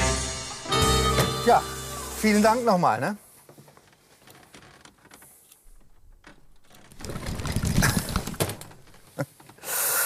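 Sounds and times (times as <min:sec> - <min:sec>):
wooden trunk knocking and rattling: 0:05.7 - 0:09.2.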